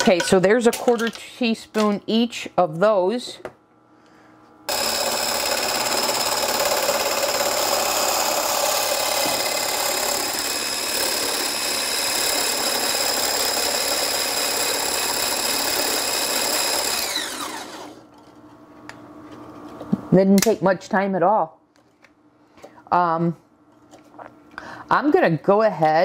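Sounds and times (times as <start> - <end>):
hand blender motor whining: 4.7 - 18.0.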